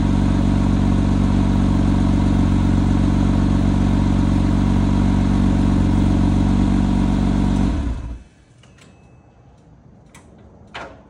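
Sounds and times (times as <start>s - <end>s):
car engine idling and shutting off: 0.0s - 8.5s.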